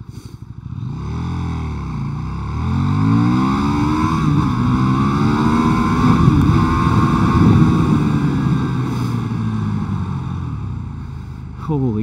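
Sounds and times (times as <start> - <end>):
motorcycle engine accelerating hard: 0.0 - 12.0.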